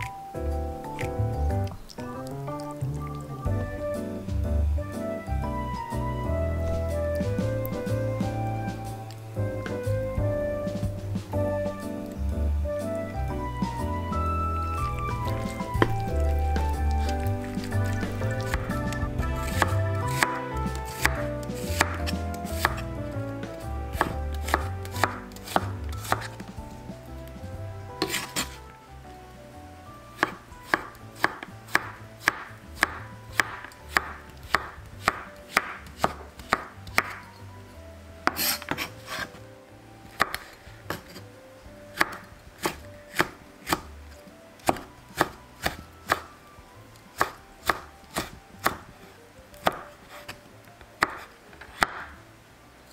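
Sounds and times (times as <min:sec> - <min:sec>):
soft background music: 0:00.0 - 0:52.9
knife chopping on wooden board: 0:14.8 - 0:22.9, 0:24.0 - 0:26.5, 0:28.0 - 0:28.6, 0:30.2 - 0:37.2, 0:38.3 - 0:39.4, 0:40.2 - 0:41.2, 0:42.0 - 0:43.9, 0:44.6 - 0:46.3, 0:47.2 - 0:48.9, 0:49.6 - 0:50.3, 0:51.0 - 0:52.1.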